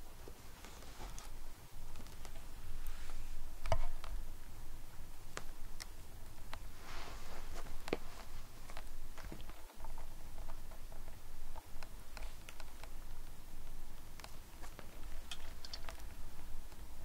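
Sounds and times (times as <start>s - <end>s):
fabric toy rustling: 0.1s - 4.0s, 6.5s - 10.1s.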